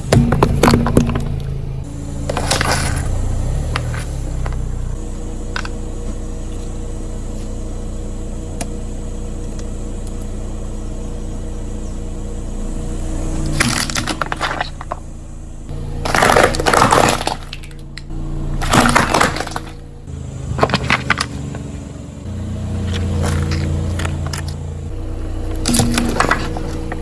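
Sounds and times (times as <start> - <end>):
car engine idling: 0.0 - 27.0
tyre crushing brittle objects: 2.3 - 4.7, 13.4 - 15.0, 15.9 - 19.8, 20.5 - 21.8, 22.8 - 24.6, 25.5 - 27.0.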